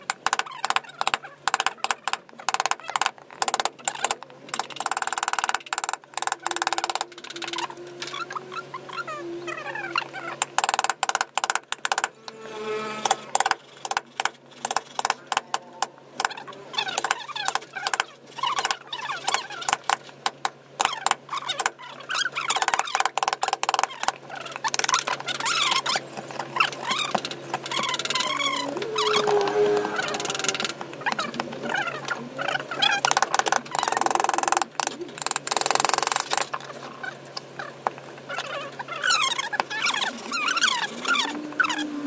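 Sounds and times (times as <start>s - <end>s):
high wavering squeaks: 6.2s - 10.6s, 12.1s - 13.4s, 24.4s - 31.9s, 38.3s - 42.0s.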